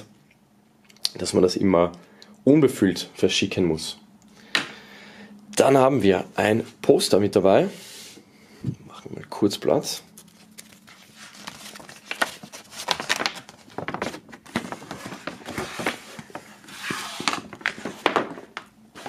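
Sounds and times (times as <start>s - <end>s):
paper poster rustling and crinkling: 9.8s - 19.0s.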